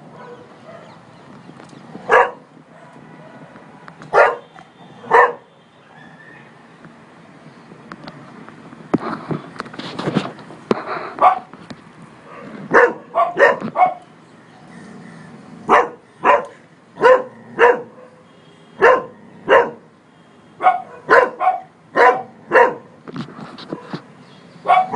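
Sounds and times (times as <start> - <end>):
dog barking: 0.1 - 1.0, 2.1 - 3.5, 4.1 - 4.5, 5.1 - 5.5, 11.2 - 11.5, 12.3 - 14.0, 15.7 - 18.2, 18.8 - 19.9, 20.6 - 22.9, 24.6 - 24.9.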